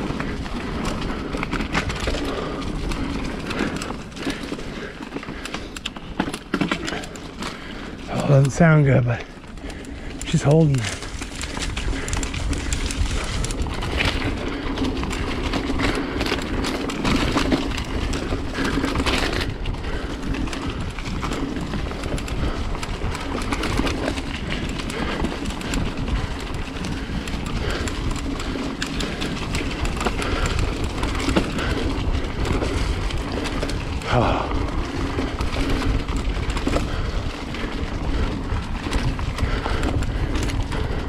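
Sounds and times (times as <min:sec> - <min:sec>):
bike chain rattling: 0:00.0 - 0:41.0
bike tyres on dirt trail: 0:00.0 - 0:41.0
rider speaking: 0:08.0 - 0:09.4, 0:10.2 - 0:11.2, 0:34.1 - 0:34.8.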